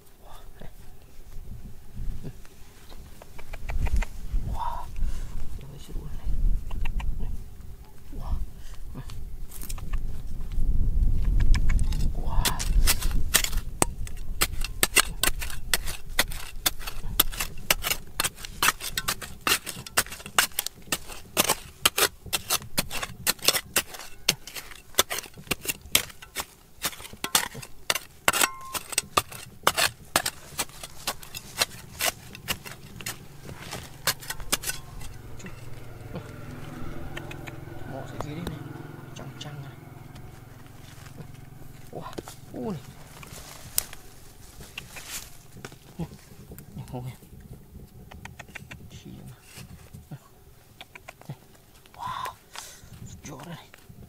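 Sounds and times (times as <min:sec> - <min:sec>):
hand tool chipping rock: 0:11.4 - 0:36.3.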